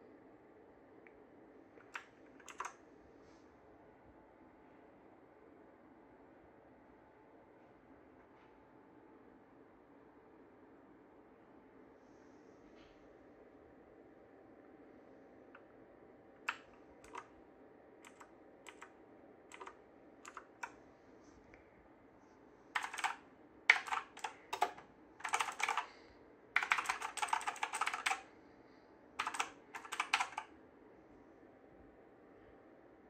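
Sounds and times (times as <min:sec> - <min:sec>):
mechanical keyboard key clicks: 0:01.8 - 0:02.7, 0:16.5 - 0:17.2, 0:18.0 - 0:18.9, 0:19.5 - 0:20.7, 0:22.8 - 0:25.8, 0:26.6 - 0:28.2, 0:29.2 - 0:30.5.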